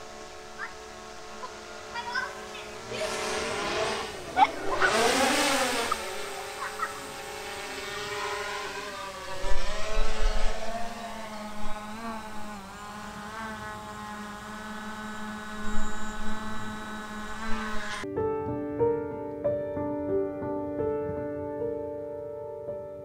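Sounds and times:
drone propellers whining: 0.0s - 18.0s.

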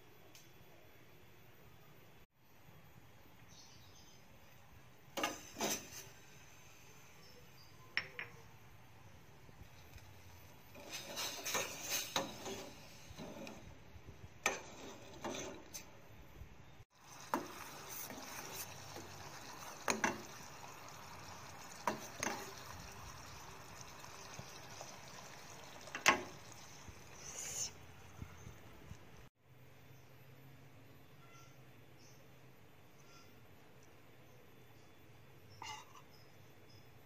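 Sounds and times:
metal spoon scraping saucepan: 10.7s - 13.7s, 14.4s - 15.9s
sugar syrup bubbling: 16.9s - 28.2s.

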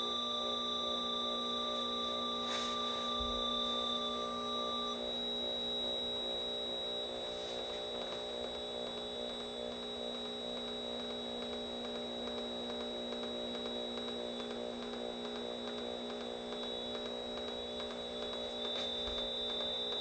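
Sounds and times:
thin high whistle: 0.0s - 8.0s, 17.7s - 20.0s
electronic hum drone: 0.0s - 20.0s.

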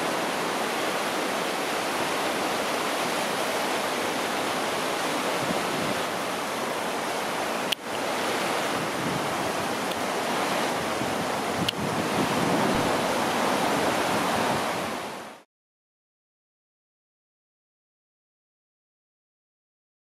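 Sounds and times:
river floodwater rushing: 0.0s - 15.4s.

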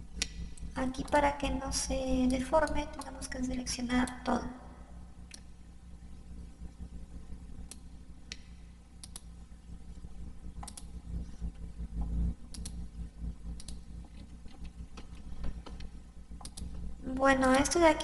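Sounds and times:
low steady hum: 0.0s - 18.0s
computer mouse clicking: 0.2s - 1.2s, 5.3s - 5.5s, 7.6s - 9.3s, 10.6s - 11.0s, 12.0s - 12.9s, 13.5s - 16.8s.

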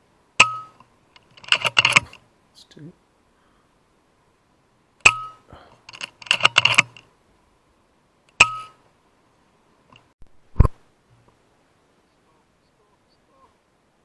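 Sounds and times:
air rifle lever clicks: 0.4s - 2.2s, 5.0s - 7.1s.

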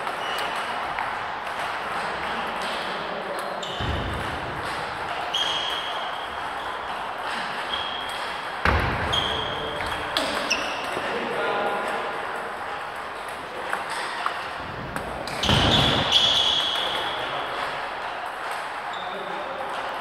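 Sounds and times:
shoes squeaking on floor: 0.0s - 0.9s, 2.0s - 11.2s, 15.2s - 17.8s, 18.8s - 19.4s
ping-pong balls clicking: 0.0s - 19.0s
sports hall din: 0.0s - 20.0s.

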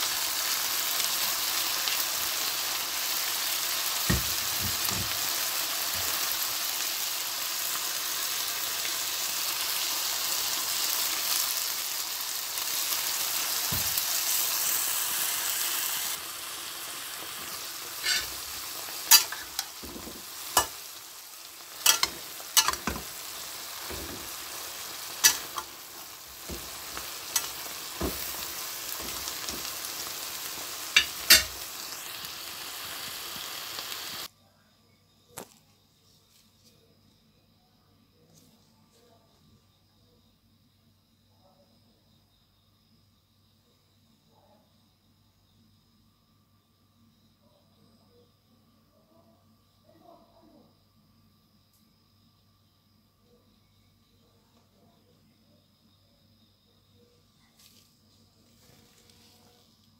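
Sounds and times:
food sizzling in a wok: 0.0s - 34.3s, 57.2s - 59.9s.

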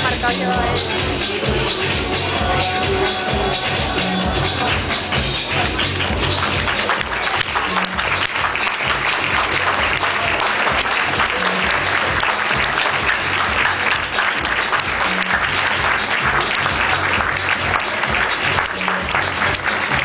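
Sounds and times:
music with repeating bass line: 0.0s - 20.0s
audience applauding: 3.1s - 20.0s.

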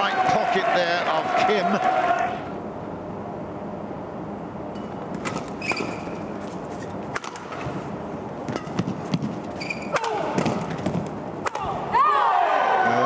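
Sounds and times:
crowd noise: 0.0s - 2.7s
racket striking shuttlecock: 4.7s - 11.7s
shoe squeaks on court: 5.2s - 7.0s, 8.5s - 10.0s.

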